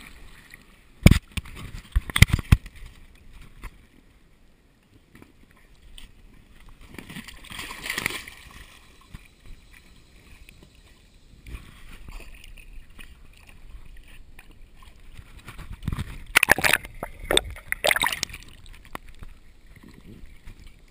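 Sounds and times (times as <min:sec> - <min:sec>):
pool water splashing: 0:16.3 - 0:20.9.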